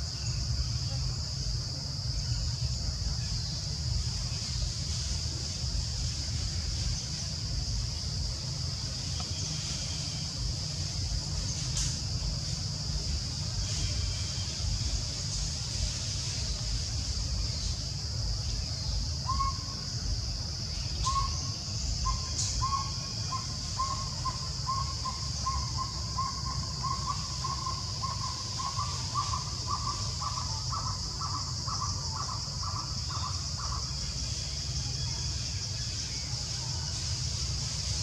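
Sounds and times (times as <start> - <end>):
steady high hiss: 0.0 - 38.0.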